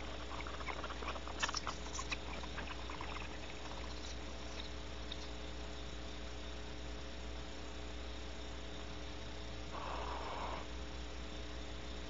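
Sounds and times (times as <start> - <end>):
electrical hum: 0.0 - 12.0
owl hiss call: 9.7 - 10.8.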